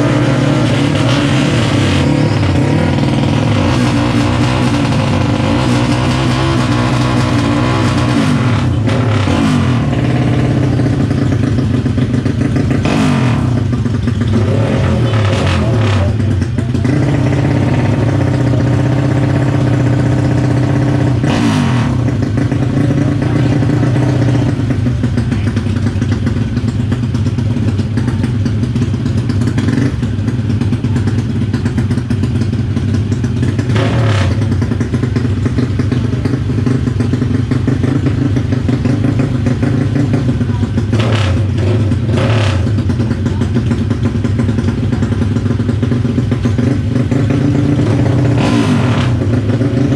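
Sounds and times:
motorcycle engines running: 0.0s - 49.9s.

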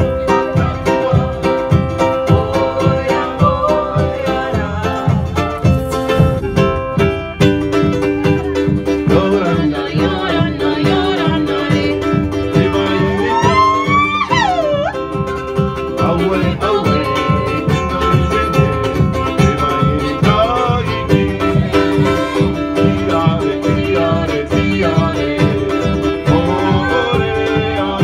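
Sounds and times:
person singing: 0.0s - 6.8s, 8.0s - 28.0s
plucked guitars: 0.0s - 28.0s
steady beat: 1.8s - 16.3s.

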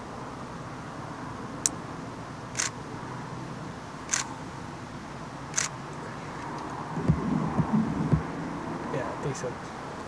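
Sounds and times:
camera shutter clicking: 2.6s - 2.8s, 4.1s - 4.3s.

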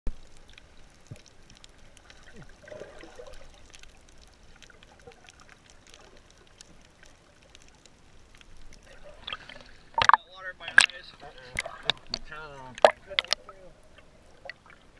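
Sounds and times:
muffled underwater hiss: 0.1s - 14.9s
small clicks and crackles: 0.1s - 14.9s
bubbles gurgling: 2.0s - 6.3s, 8.8s - 13.7s.

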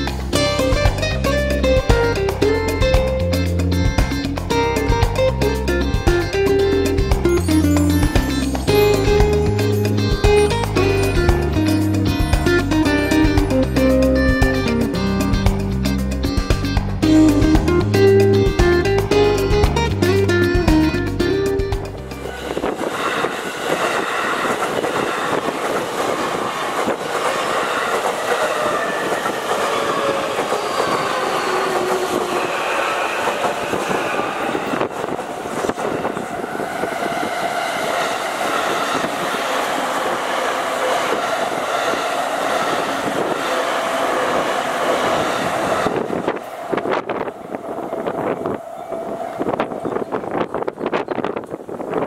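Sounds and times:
crossing warning bell ringing: 0.0s - 15.4s, 21.1s - 51.7s
trains passing: 0.0s - 52.0s
wheel squeal: 22.2s - 51.6s.

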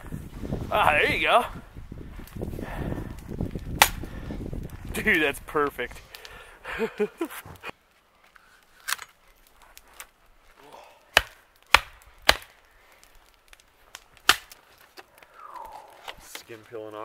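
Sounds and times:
hatchet chopping wood: 3.8s - 4.0s, 11.1s - 12.6s, 14.2s - 14.6s.

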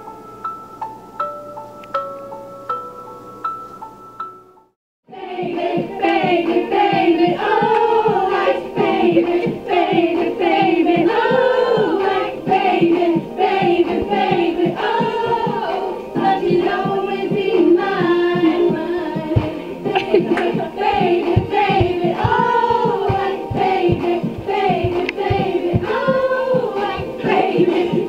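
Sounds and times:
soft bell-like melody: 0.1s - 4.7s
women singing together: 5.1s - 28.0s
clapped beat: 5.8s - 11.4s, 18.4s - 28.0s.

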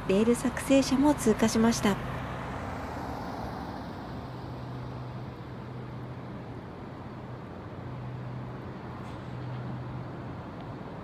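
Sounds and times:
road and traffic noise: 0.0s - 11.0s
truck engine hum: 0.0s - 11.0s.

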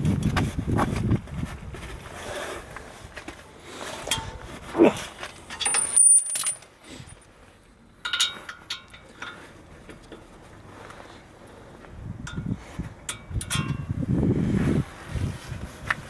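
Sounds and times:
metallic clinks and knocks: 5.3s - 7.3s, 8.0s - 10.3s, 12.2s - 13.9s.

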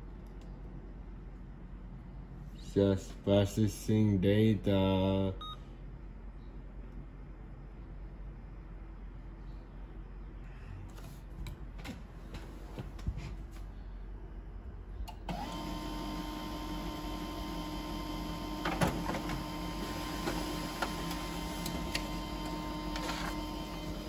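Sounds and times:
printer running and printing: 15.3s - 24.0s
loud printer clack: 18.0s - 24.0s
printer clicks: 18.6s - 19.4s.

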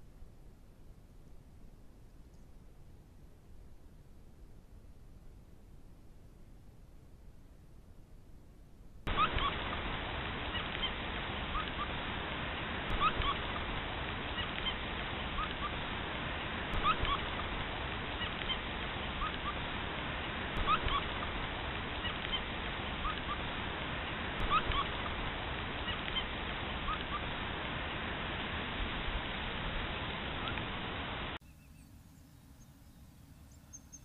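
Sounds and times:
rain hissing: 9.1s - 31.4s.

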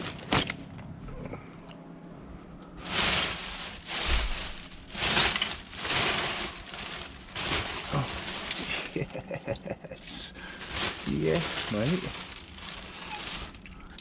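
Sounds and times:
plastic bin bags rustling: 0.0s - 0.6s, 2.7s - 9.6s, 10.4s - 14.0s.

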